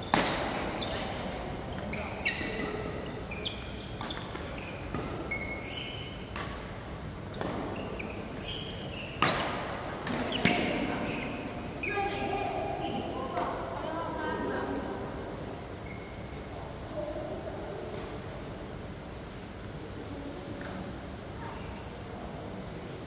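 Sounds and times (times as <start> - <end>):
shoes squeaking on court: 0.0 - 6.4, 7.3 - 9.5, 10.2 - 13.2, 15.8 - 16.3
racket striking shuttlecock: 0.1 - 0.7.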